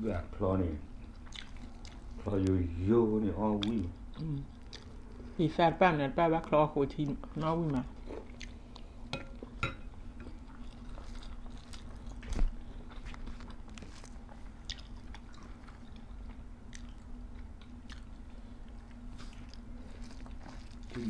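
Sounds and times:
faint steady hum: 0.0 - 21.0
chewing and crunching vegetables: 1.0 - 5.4, 6.4 - 9.6, 10.2 - 21.0.

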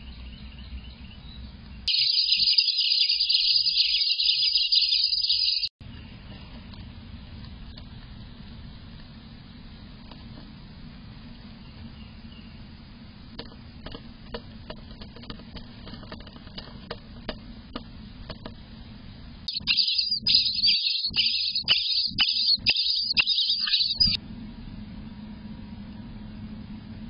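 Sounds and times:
nestlings begging calls: 1.9 - 5.7, 19.5 - 24.2
low hum: 3.5 - 27.0
faint scratches and clicks: 13.4 - 18.6.

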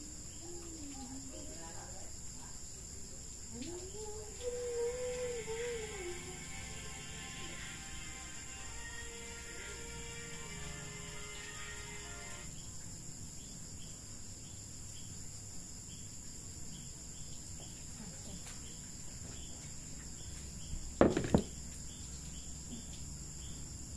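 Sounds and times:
insects chirping: 0.0 - 23.9
thumps on microphone: 21.0 - 21.6.

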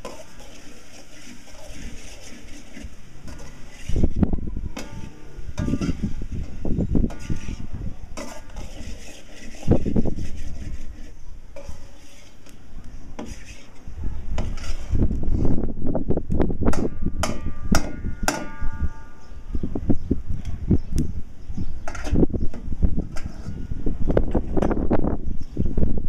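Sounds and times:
metal spoon scraping a pan: 0.0 - 12.6, 13.2 - 15.6, 16.7 - 19.4, 21.8 - 24.8.

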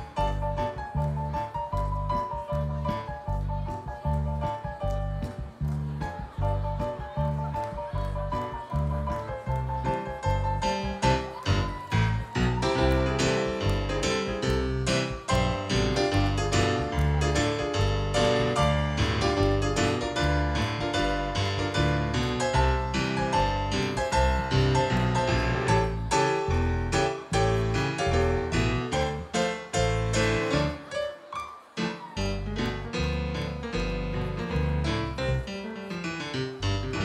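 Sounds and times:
piano melody: 0.0 - 37.0
swing band playing: 5.9 - 30.9.

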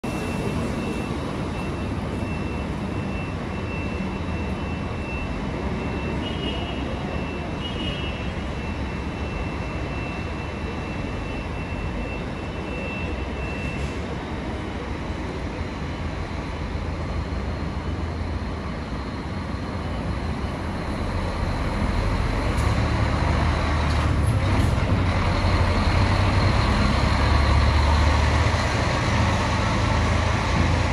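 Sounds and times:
diesel bus engine rumble: 0.0 - 30.9
short beeps: 0.1 - 14.0.

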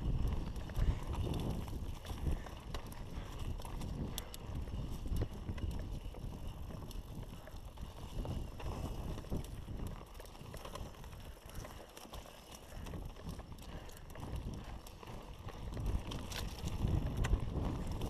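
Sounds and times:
wind on microphone: 0.0 - 11.6, 12.7 - 18.0
bike clicks and rattles: 0.0 - 18.0
bike tyres rumbling on dirt: 0.0 - 18.0.

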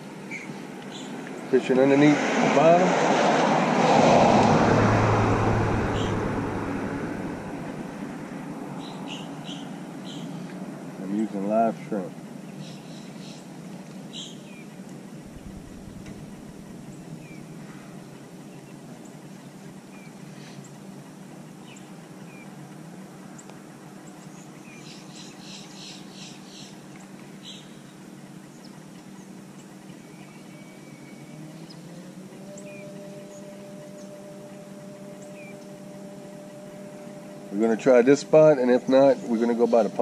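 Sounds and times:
low mechanical hum: 0.0 - 1.9, 4.3 - 40.0
bird chirps and calls: 8.8 - 10.6, 14.1 - 14.7, 24.2 - 26.8.

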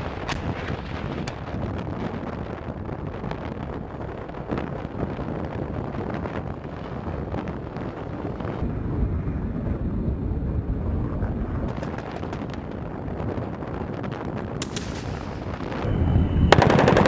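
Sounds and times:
steady low rumble: 0.0 - 17.0
wind buffeting microphone: 0.0 - 17.0.

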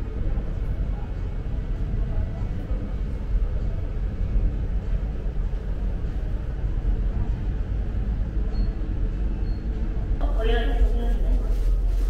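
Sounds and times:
ship engines rumbling: 0.0 - 11.5.

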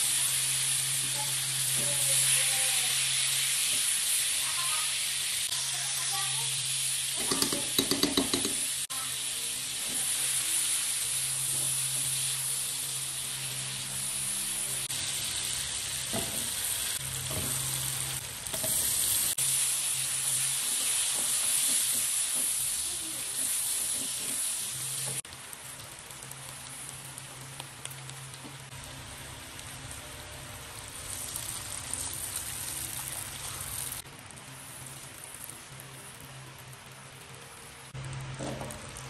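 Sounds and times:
garlic and onion sizzling: 0.0 - 39.0
spatula stirring in wok: 15.1 - 25.6.

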